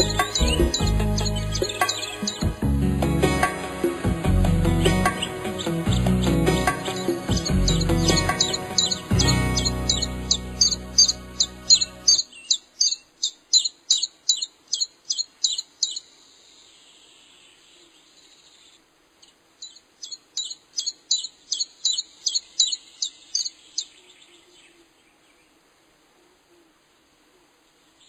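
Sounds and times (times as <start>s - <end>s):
songbird chirping: 0.0s - 28.0s.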